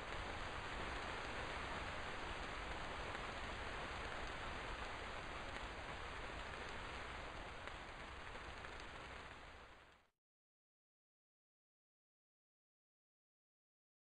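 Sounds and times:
heavy rain hissing: 0:00.0 - 0:09.9.

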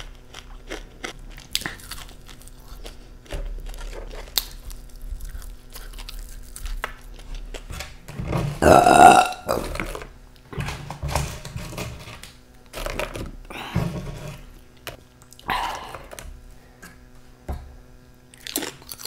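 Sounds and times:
crisp chips crackling: 0:03.6 - 0:07.6
loud burp: 0:08.6 - 0:09.9.

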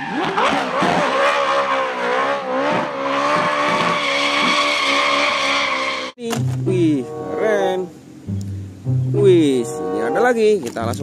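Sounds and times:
car engine at high revs: 0:00.0 - 0:06.1
tyres squealing: 0:03.1 - 0:07.6.

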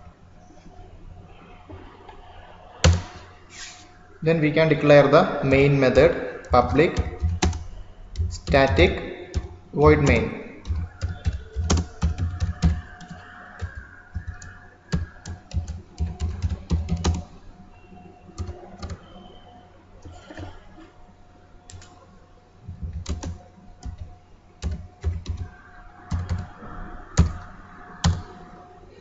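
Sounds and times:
keyboard typing: 0:02.8 - 0:03.3, 0:05.4 - 0:17.4, 0:18.3 - 0:19.3, 0:21.7 - 0:28.5.

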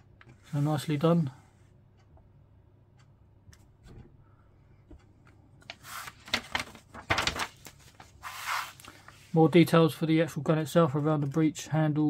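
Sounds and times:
page rustling: 0:05.6 - 0:09.4
paper booklet being handled: 0:05.6 - 0:09.4.

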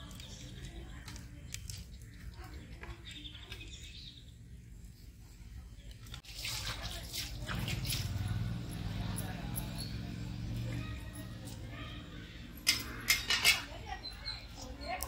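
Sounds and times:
dense bird chirping: 0:11.8 - 0:15.0.

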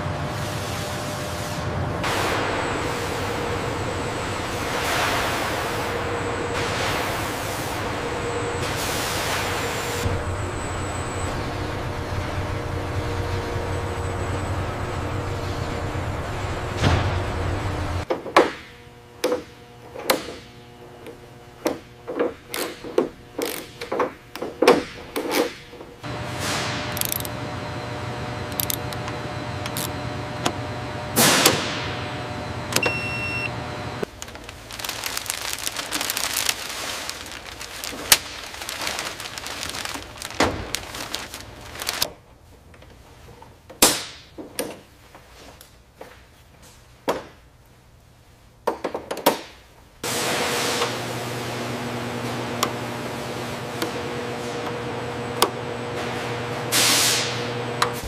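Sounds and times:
metallic clicks from hand tools: 0:27.0 - 0:27.3
short electronic beep: 0:32.8 - 0:33.5.

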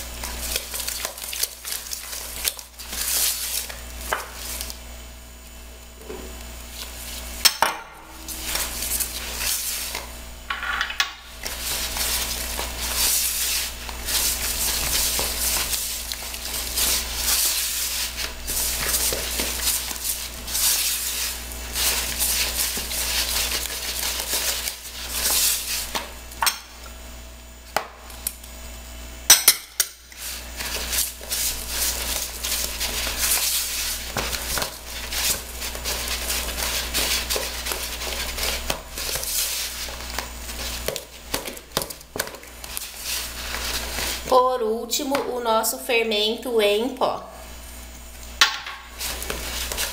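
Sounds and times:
spoon beating batter in bowl: 0:29.4 - 0:44.3.

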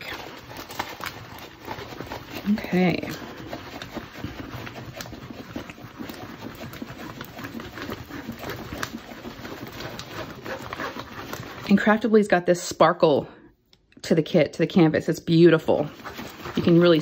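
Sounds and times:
plastic film rustling and crackling: 0:00.0 - 0:11.9, 0:15.8 - 0:17.0.

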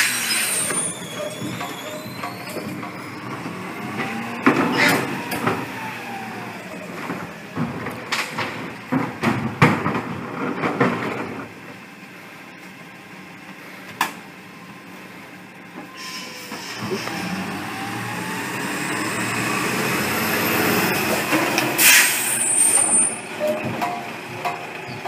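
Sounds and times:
garbage truck idling: 0:00.0 - 0:25.0.

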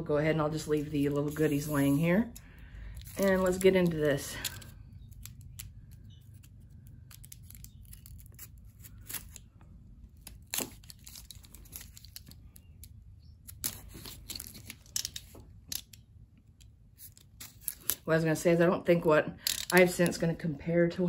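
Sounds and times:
packing tape tearing: 0:02.8 - 0:09.5, 0:10.1 - 0:15.4
utility knife slitting tape: 0:04.4 - 0:09.5, 0:10.1 - 0:16.0.

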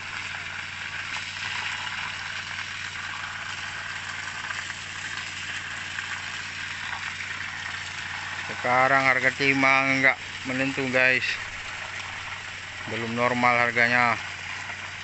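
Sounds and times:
pump engine humming: 0:00.0 - 0:15.0
slurry pouring and splashing: 0:00.0 - 0:15.0.

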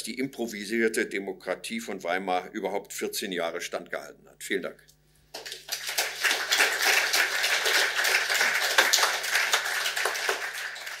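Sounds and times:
audience applauding: 0:05.4 - 0:11.0.

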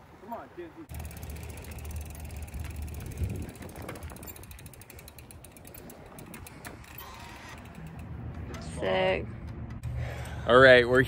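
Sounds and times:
bicycle freewheel ticking: 0:00.9 - 0:08.2
bike bump: 0:00.9 - 0:10.3.

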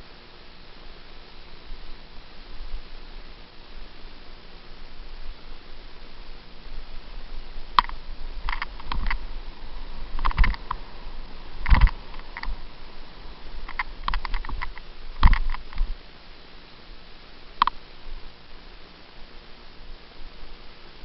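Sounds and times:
mountain bike rattling over bumps: 0:13.6 - 0:16.0.

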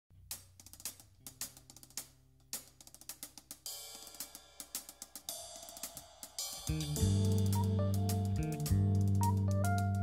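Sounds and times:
hi-hat and cymbal strikes: 0:00.2 - 0:10.0
electric bass notes: 0:06.7 - 0:10.0
live band playing: 0:06.7 - 0:10.0.

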